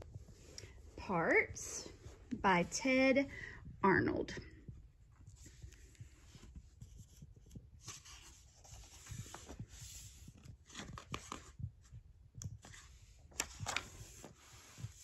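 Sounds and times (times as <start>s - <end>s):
paper pages rustling: 5.4s - 12.0s, 12.6s - 15.0s.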